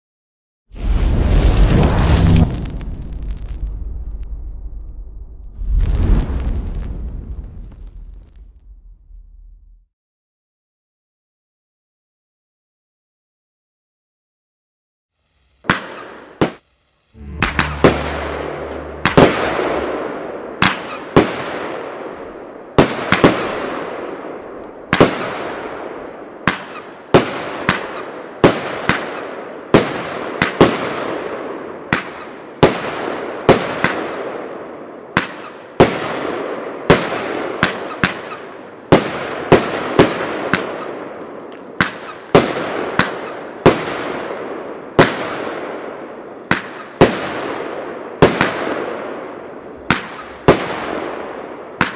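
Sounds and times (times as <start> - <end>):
rush of firework noise: 0.7 - 9.7, 15.6 - 27.8, 49.6 - 51.9
firework bangs: 0.8 - 9.1, 15.6 - 16.6, 17.2 - 34.5, 35.1 - 51.9.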